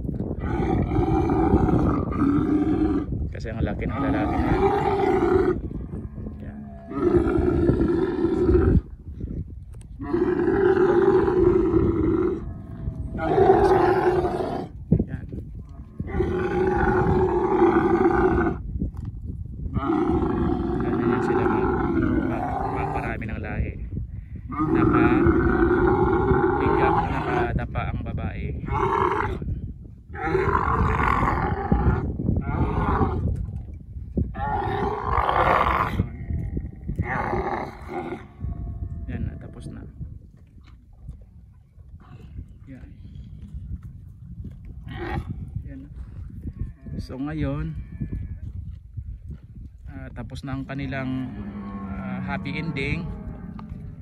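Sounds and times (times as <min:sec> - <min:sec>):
camel bellowing: 0:00.4 - 0:03.2, 0:03.8 - 0:09.0, 0:09.9 - 0:14.8, 0:15.6 - 0:18.7, 0:19.7 - 0:23.3, 0:24.4 - 0:27.6, 0:28.6 - 0:29.5, 0:30.1 - 0:33.6, 0:34.2 - 0:39.7, 0:43.0 - 0:48.6, 0:50.8 - 0:54.0.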